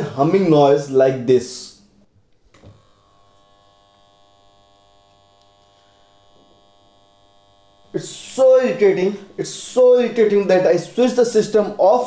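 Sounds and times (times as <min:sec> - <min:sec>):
speaker buzz: 0:02.5 - 0:11.8.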